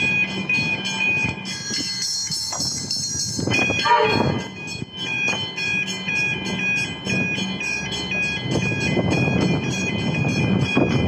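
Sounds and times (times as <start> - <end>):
crossing warning bell ringing: 0.0 - 11.0
electric train running: 0.0 - 11.0.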